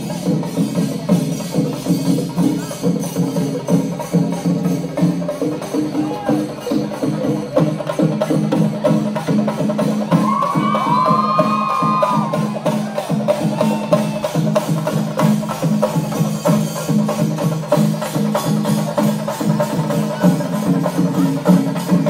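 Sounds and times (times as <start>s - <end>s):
drums in a fast rhythm: 0.0s - 22.0s
crowd whistling: 10.1s - 14.7s.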